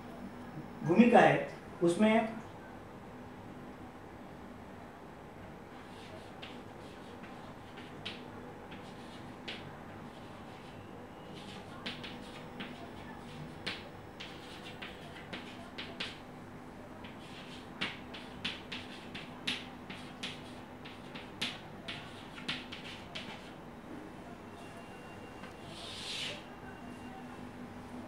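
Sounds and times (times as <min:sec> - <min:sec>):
faint steady hum: 0:00.0 - 0:28.0
chalk tapping and scraping on board: 0:05.8 - 0:10.8, 0:11.4 - 0:16.2, 0:17.0 - 0:23.5.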